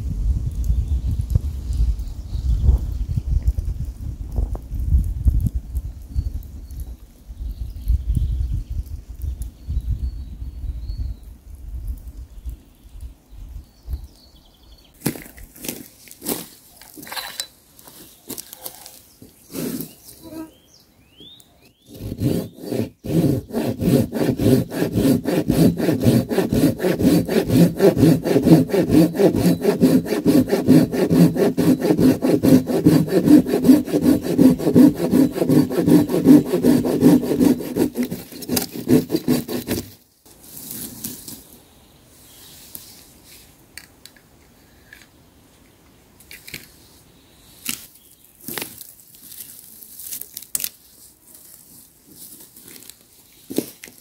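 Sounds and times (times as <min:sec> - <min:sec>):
pull saw cutting log: 0:19.5 - 0:20.0, 0:21.8 - 0:40.0.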